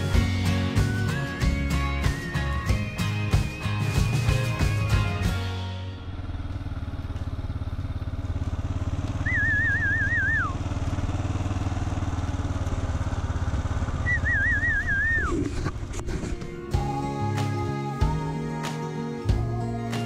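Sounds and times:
motorbike engine running: 0:00.0 - 0:17.0
warbling whistle: 0:09.2 - 0:10.6, 0:14.0 - 0:15.4.

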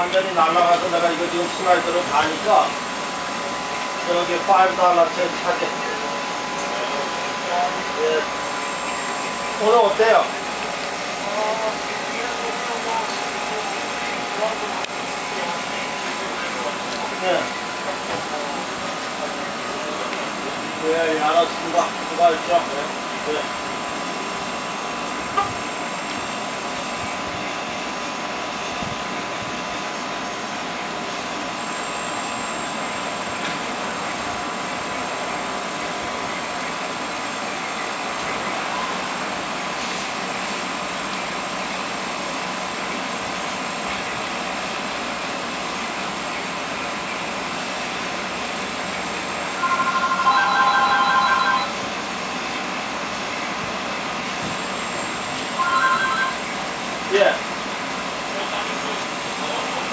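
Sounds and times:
mechanical hum with whine: 0:00.0 - 0:59.9
warbling electronic tone: 0:49.6 - 0:51.8, 0:55.6 - 0:56.5.

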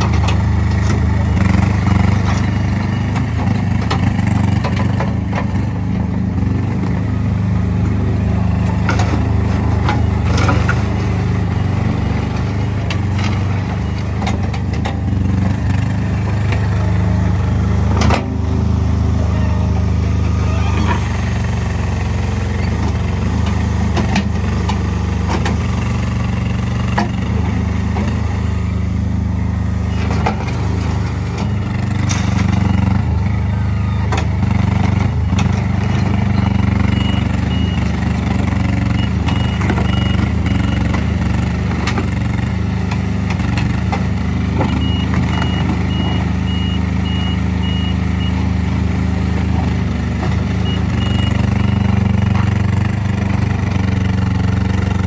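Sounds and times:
loader engine running: 0:00.0 - 0:55.0
reversing alarm beeping: 0:35.1 - 0:38.0, 0:38.8 - 0:41.2, 0:44.7 - 0:48.4, 0:50.6 - 0:51.8.

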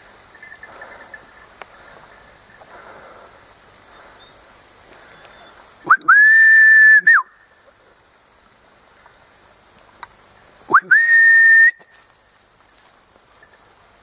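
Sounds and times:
loud high whistle: 0:05.9 - 0:07.4, 0:10.7 - 0:11.9.

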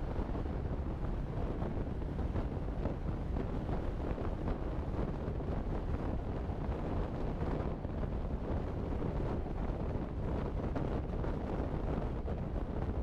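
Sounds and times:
low road noise rumble: 0:00.0 - 0:13.0
wind buffeting microphone: 0:00.0 - 0:13.0.

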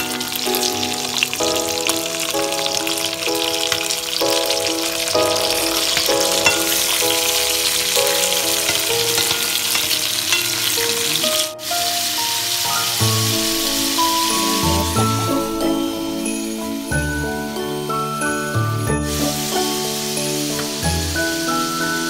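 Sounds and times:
light background music: 0:00.0 - 0:22.0
pork sizzling in hot oil: 0:00.0 - 0:22.0.

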